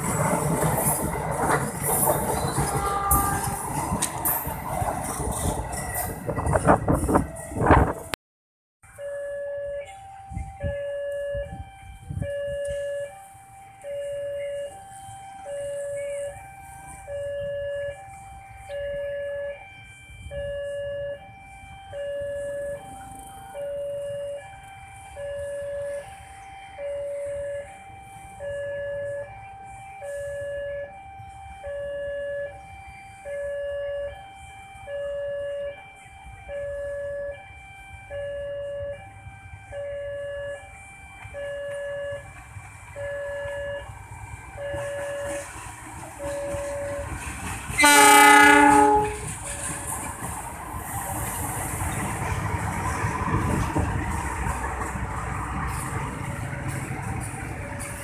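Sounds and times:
diesel train approaching: 0.0s - 8.2s, 8.8s - 58.0s.

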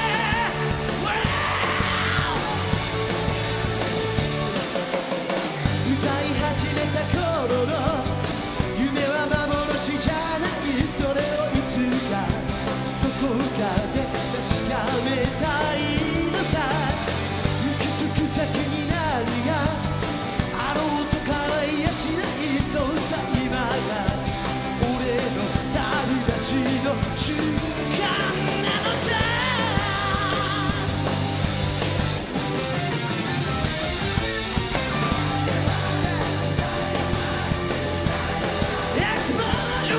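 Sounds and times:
man singing: 0.0s - 2.8s, 5.7s - 31.1s, 34.9s - 39.9s
electric guitar: 0.0s - 39.9s
drum beat: 34.0s - 39.9s.

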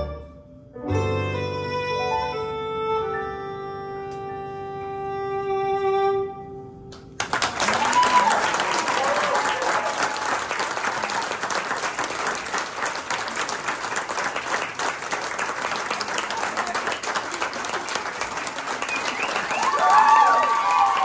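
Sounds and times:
audience applauding: 7.0s - 21.0s.

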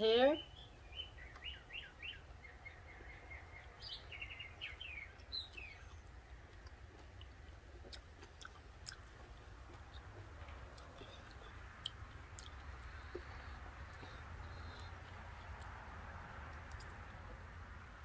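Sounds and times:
low background rumble: 0.0s - 18.0s
small songbird chirping: 0.2s - 7.6s, 10.7s - 15.8s.

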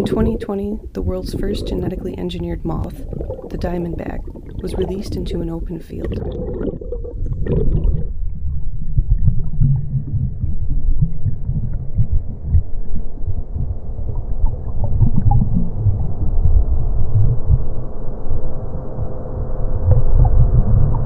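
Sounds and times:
low uneven rumbling: 0.0s - 21.0s.

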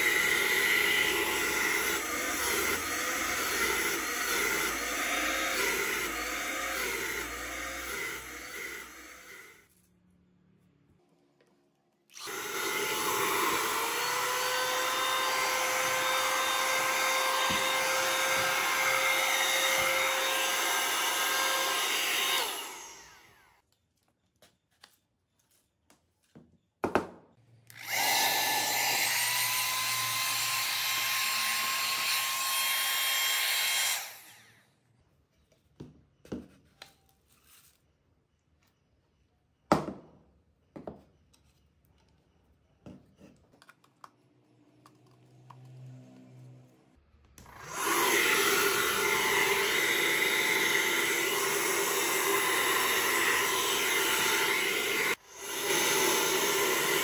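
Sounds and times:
vacuum motor whine: 12.1s - 23.4s, 47.4s - 57.0s.

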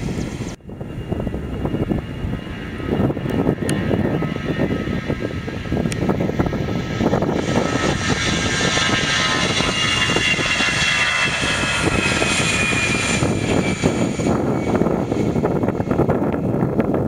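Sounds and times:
jet engines at high thrust: 0.0s - 17.0s.

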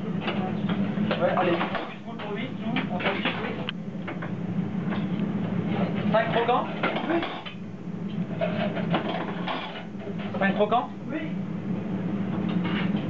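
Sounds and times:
steady low hum: 0.0s - 13.0s
plates pans and cutlery clattering: 6.3s - 7.6s, 8.3s - 10.4s.

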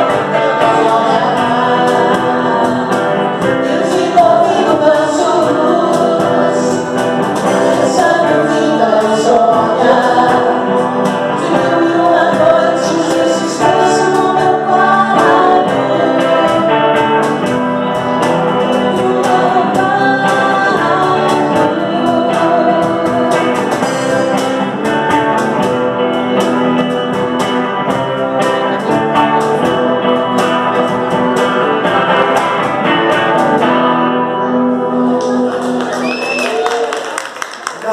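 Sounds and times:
woman singing into a microphone: 0.0s - 24.4s
electric guitar: 0.0s - 37.9s.

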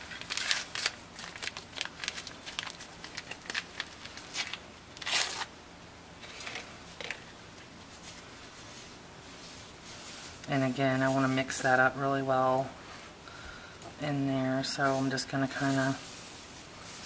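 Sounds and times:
paper packet crinkling: 0.0s - 5.5s
paper ripping: 0.0s - 5.5s.

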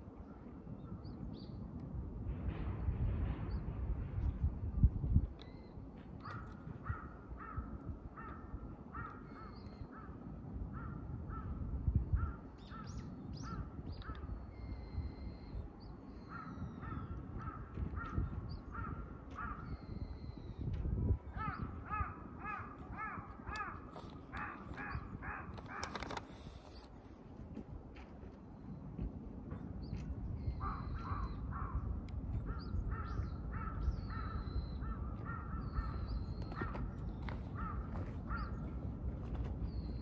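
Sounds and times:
crows cawing: 6.3s - 10.2s, 16.3s - 19.7s, 21.4s - 25.9s, 33.0s - 38.8s.

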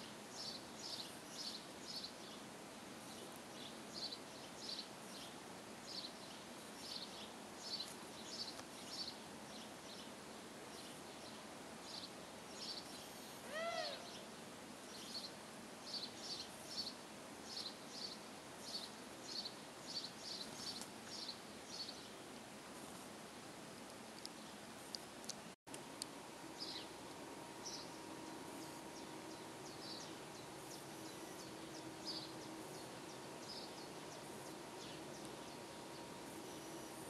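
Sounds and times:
small birds chirping: 0.0s - 22.2s, 25.7s - 37.0s
lower rising and falling bird call: 13.4s - 14.2s.

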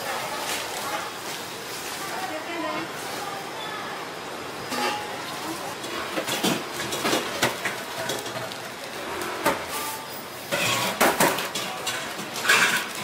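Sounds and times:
metal pans and utensils clinking: 4.6s - 13.0s.

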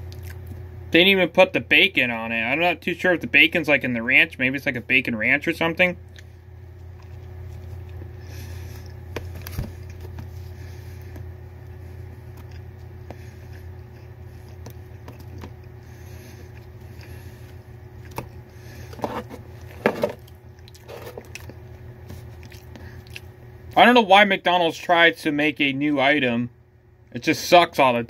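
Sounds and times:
person chewing food: 0.0s - 0.6s, 6.1s - 23.4s
steady low hum: 0.0s - 28.0s.

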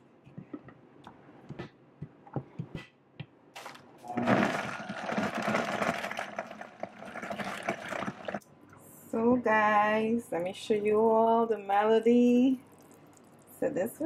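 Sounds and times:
blender motor running: 4.1s - 8.4s.

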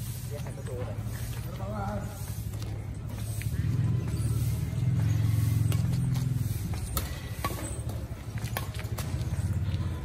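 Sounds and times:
low vehicle engine hum: 0.0s - 10.0s
rackets striking shuttlecock: 6.7s - 9.2s.

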